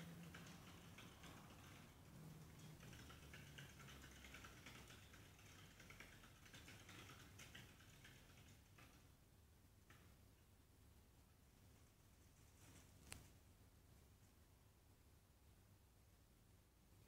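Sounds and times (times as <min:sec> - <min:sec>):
hamster wheel ticking: 0:00.0 - 0:09.2.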